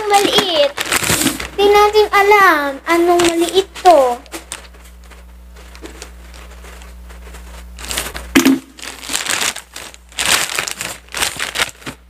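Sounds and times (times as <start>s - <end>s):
scissors cutting plastic: 0.0s - 1.5s
plastic pouch crinkling: 0.0s - 12.0s.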